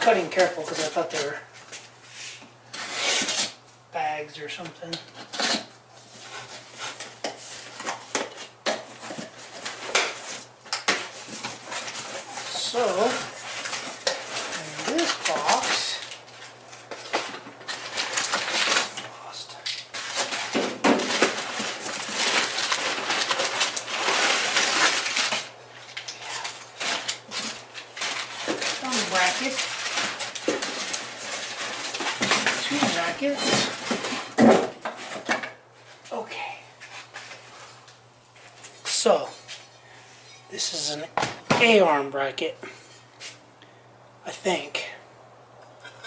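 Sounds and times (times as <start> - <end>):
cardboard and tape scraping: 0.1 - 3.6, 5.2 - 19.0, 19.9 - 35.3
packing paper crinkling: 5.3 - 34.4.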